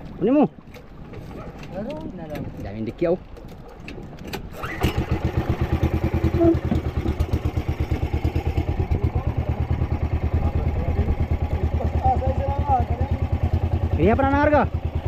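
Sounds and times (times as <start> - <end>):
boat engine starting and running: 0.0 - 15.0.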